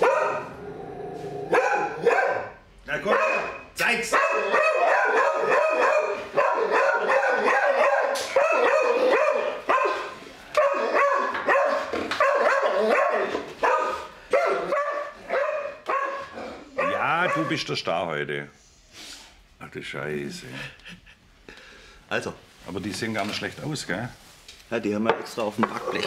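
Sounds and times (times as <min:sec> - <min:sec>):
dog barking: 0:00.0 - 0:00.6, 0:01.5 - 0:17.6.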